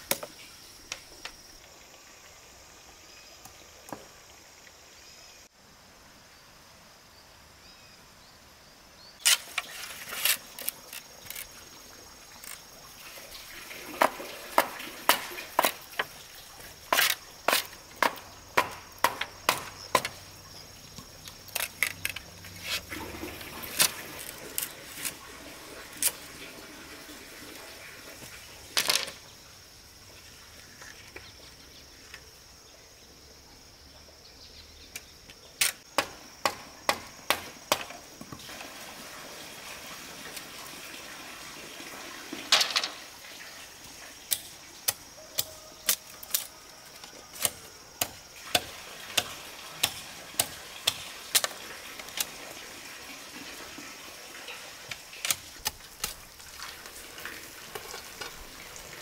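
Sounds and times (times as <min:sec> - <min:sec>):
insects droning: 0:00.0 - 0:59.0.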